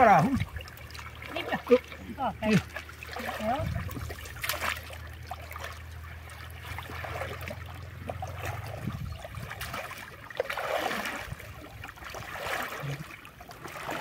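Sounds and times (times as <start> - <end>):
low steady hum: 0.0 - 14.0
muddy water sloshing: 0.0 - 14.0
small splashes: 0.0 - 14.0.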